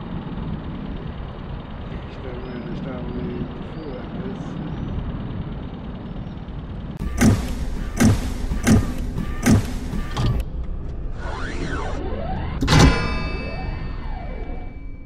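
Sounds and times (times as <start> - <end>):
low steady rumble: 0.0 - 15.0
heavy metallic robot stomps: 7.0 - 10.4.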